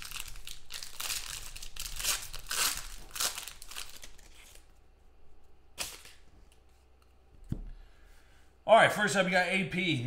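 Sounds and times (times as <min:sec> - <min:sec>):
foil wrapper crinkling and tearing: 0:00.0 - 0:04.7, 0:05.8 - 0:06.2.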